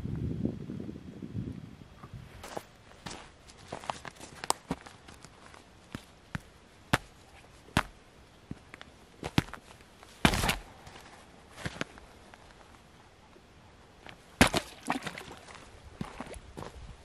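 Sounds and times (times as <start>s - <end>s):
boot stamping on cracking ice: 10.2s - 10.6s, 14.4s - 15.4s.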